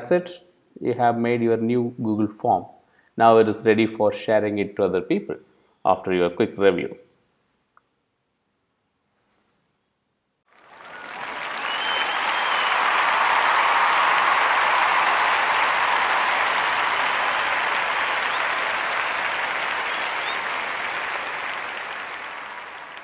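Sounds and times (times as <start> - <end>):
crowd applause: 10.5 - 23.0.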